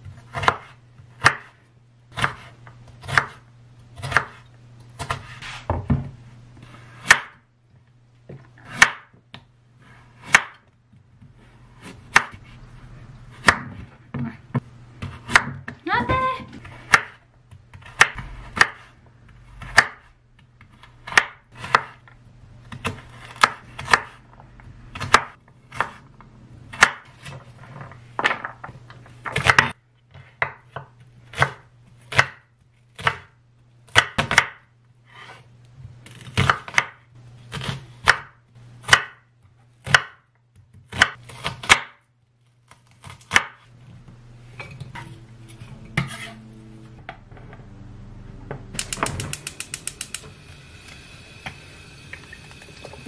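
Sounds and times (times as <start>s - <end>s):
knife chopping on wooden board: 0.3s - 3.4s, 4.0s - 4.4s, 8.6s - 9.2s, 10.2s - 10.7s, 11.8s - 12.5s, 13.4s - 15.8s, 16.6s - 18.9s, 19.6s - 22.0s, 22.7s - 24.2s, 24.9s - 26.0s, 33.9s - 34.6s, 36.1s - 39.2s, 39.8s - 42.0s, 42.8s - 43.6s.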